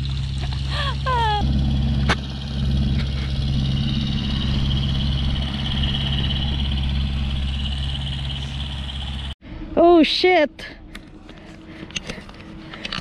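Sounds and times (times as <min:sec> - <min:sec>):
chairlift machinery humming: 0:00.0 - 0:09.4
high-pitched machine whine: 0:00.0 - 0:09.4.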